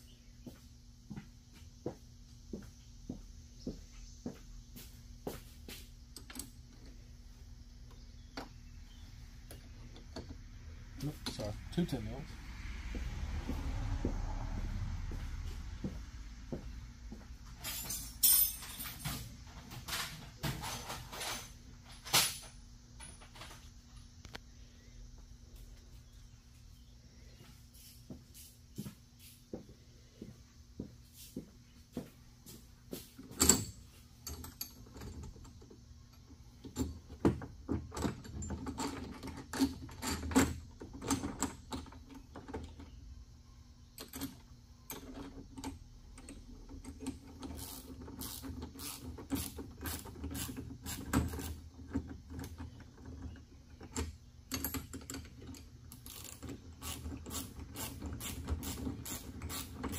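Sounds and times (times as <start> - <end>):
steady low hum: 0.0 - 59.9
hand tool clinking on metal: 17.6 - 19.3.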